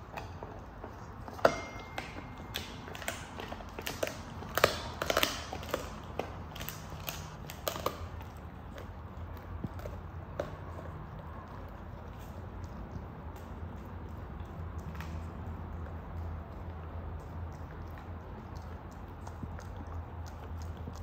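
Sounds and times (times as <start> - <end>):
dog chewing and crunching: 0.0 - 21.0
ringing clink: 1.4 - 2.9.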